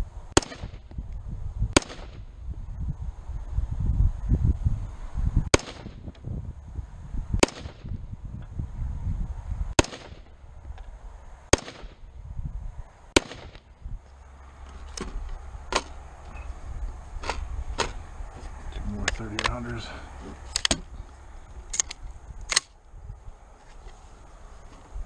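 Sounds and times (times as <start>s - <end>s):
rifle shots with echo: 0.4s - 0.8s, 1.8s - 2.2s, 5.5s - 6.0s, 7.4s - 7.9s, 9.8s - 10.3s, 11.5s - 12.0s, 13.2s - 13.7s
faint gunshots: 1.8s - 2.2s, 5.5s - 6.0s, 7.4s - 7.9s, 9.8s - 10.3s, 11.5s - 12.0s, 13.2s - 13.7s.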